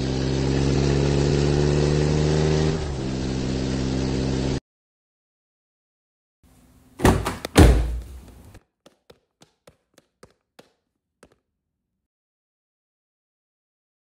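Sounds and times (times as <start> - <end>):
car door slamming: 7.0 - 8.2
car door clunk: 7.0 - 8.3
light footsteps: 7.0 - 11.4.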